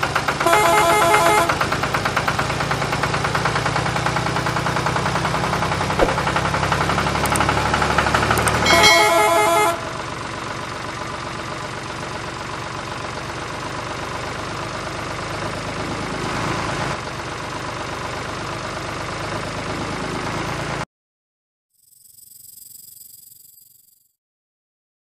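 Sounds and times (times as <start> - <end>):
engine idling: 0.0 - 20.7
loud tone: 8.6 - 10.1.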